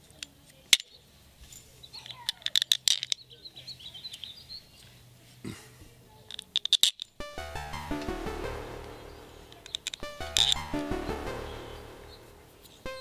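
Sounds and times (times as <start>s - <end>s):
small birds chirping: 0.0s - 5.2s.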